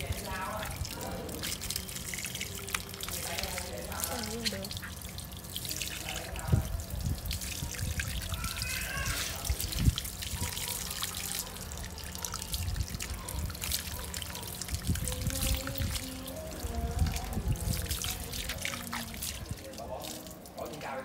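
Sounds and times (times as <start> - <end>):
tap water splashing on dog: 0.1 - 20.9.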